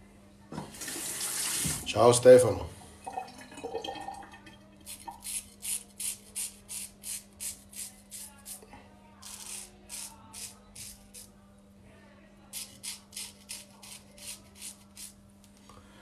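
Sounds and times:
razor scraping stubble: 4.9 - 8.6, 9.2 - 11.3, 12.5 - 15.2.

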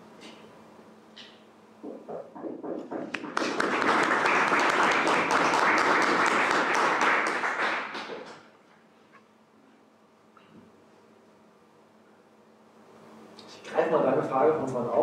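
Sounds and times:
audience applauding: 2.8 - 8.5.

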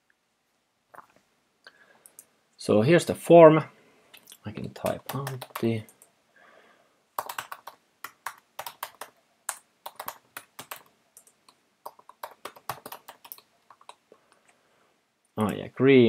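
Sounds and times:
typing on computer keyboard: 4.8 - 6.0, 7.2 - 14.0.

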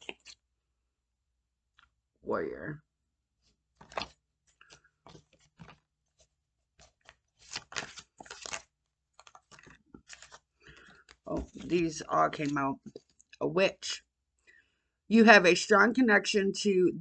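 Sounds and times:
cards being shuffled: 0.0 - 0.4, 3.8 - 13.4.

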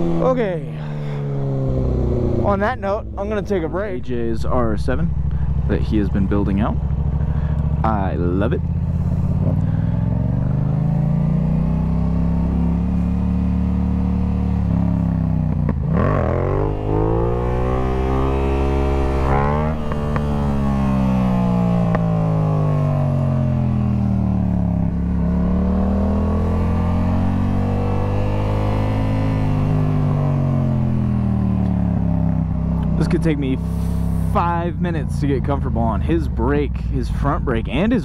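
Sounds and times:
motorcycle engine revving: 0.0 - 38.0.

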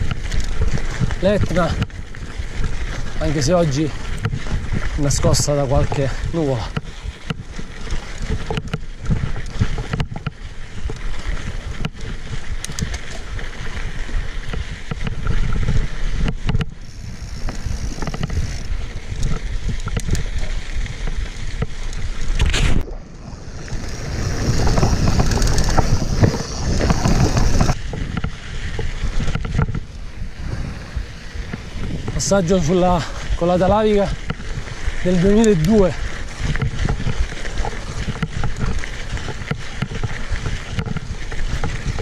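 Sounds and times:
tyres crunching on gravel: 0.0 - 21.9, 22.5 - 29.8
bike rattling: 0.0 - 42.0
wind buffeting microphone: 0.0 - 42.0.

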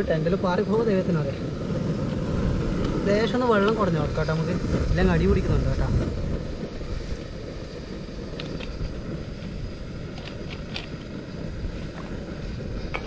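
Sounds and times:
wind buffeting the microphone: 0.0 - 13.0.

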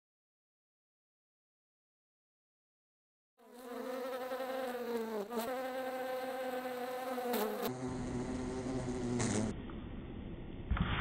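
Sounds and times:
housefly buzzing: 3.4 - 9.6.

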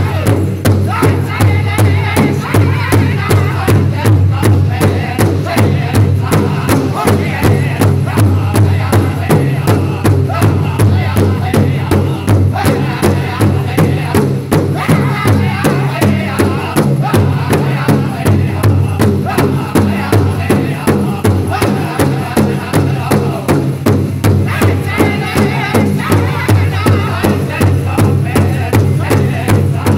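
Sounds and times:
group singing in unison: 0.0 - 29.9
large hide drum beating: 0.0 - 29.9.

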